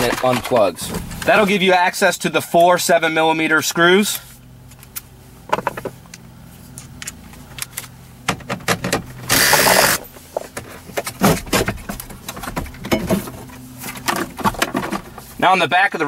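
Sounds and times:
radio knocking and rattling: 0:05.5 - 0:06.0
cordless drill-driver burst: 0:09.3 - 0:10.0.

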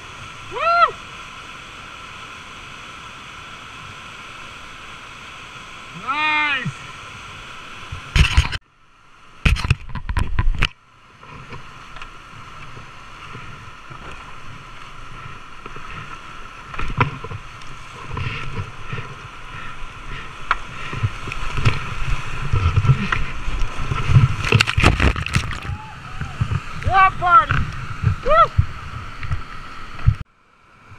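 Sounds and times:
whitewater rushing: 0:00.0 - 0:09.4, 0:10.9 - 0:30.9
water thudding against boat: 0:20.8 - 0:26.9.

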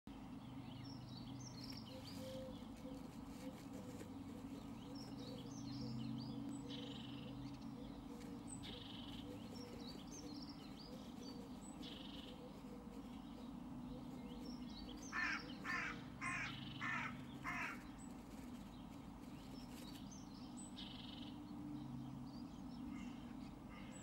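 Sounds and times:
songbirds warbling: 0:00.1 - 0:24.0
steady low hum: 0:00.1 - 0:24.0.

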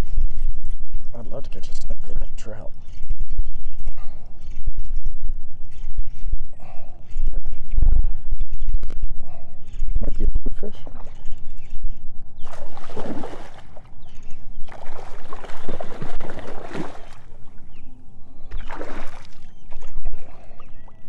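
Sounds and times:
water splashing around kayak: 0:12.4 - 0:17.8, 0:18.4 - 0:20.9.

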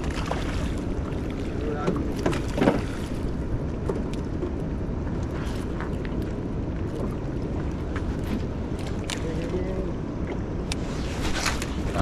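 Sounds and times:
water around boat: 0:00.0 - 0:12.0
wind: 0:00.0 - 0:12.0.

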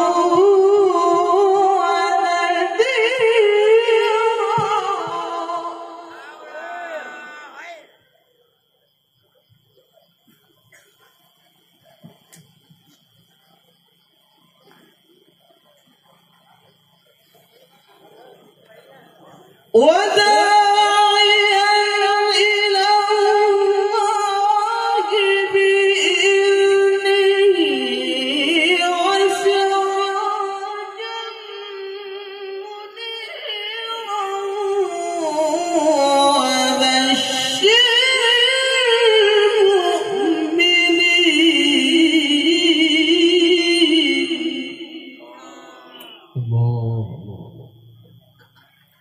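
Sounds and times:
man reciting melodically into microphone: 0:20.0 - 0:45.0, 0:46.0 - 0:47.6.

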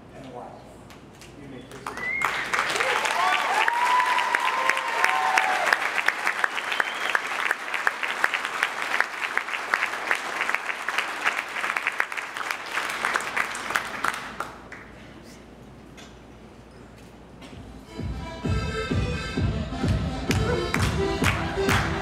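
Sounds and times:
congregation clapping: 0:01.7 - 0:15.0, 0:20.3 - 0:22.0.

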